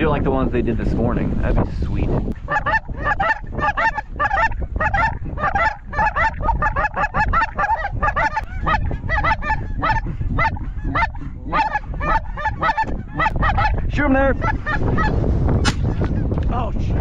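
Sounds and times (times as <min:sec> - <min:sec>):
steady low rumble: 0:00.0 - 0:17.0
goose honking: 0:02.5 - 0:13.8.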